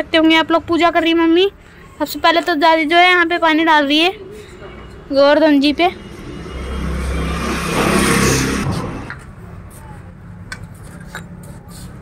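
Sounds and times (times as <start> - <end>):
vehicle passing by: 4.4 - 9.7.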